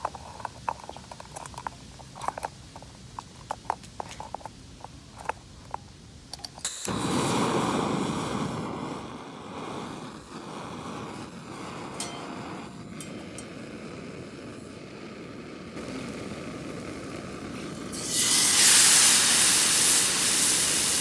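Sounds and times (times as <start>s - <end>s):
small metal clicks: 0.0s - 6.9s
gas burner hissing: 0.0s - 21.0s.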